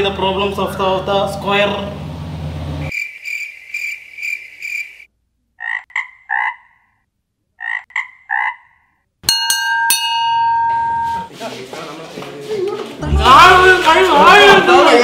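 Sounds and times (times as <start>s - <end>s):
cricket chirping: 2.9s - 5.1s
frog croaking: 2.9s - 9.0s
metal gong ringing: 9.3s - 11.3s.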